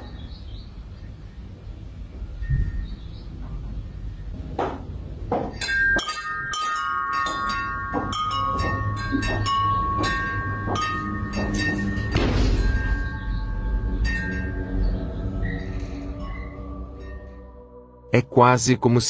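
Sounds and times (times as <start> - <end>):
metal wind chime ringing: 5.5 - 17.3.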